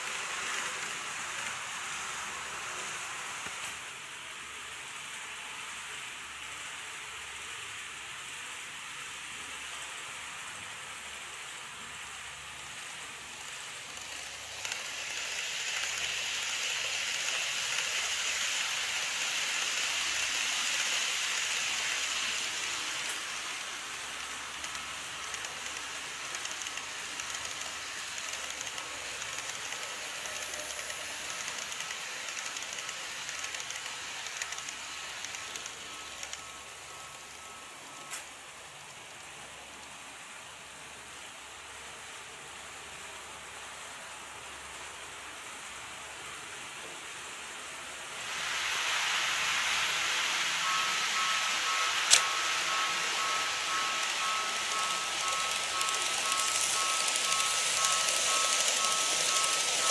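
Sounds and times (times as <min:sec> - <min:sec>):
model train wheels rattling: 0:12.8 - 0:38.2, 0:48.7 - 0:59.9.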